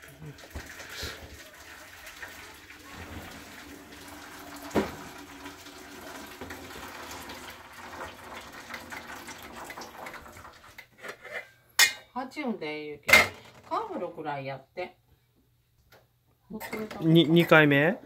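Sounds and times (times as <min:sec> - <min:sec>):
water running from tap: 0:00.0 - 0:10.8.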